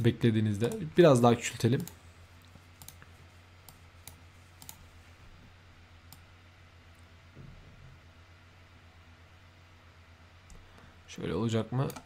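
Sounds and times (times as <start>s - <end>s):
low steady hum: 0.0s - 12.0s
computer mouse clicks: 0.6s - 0.8s, 2.8s - 4.8s.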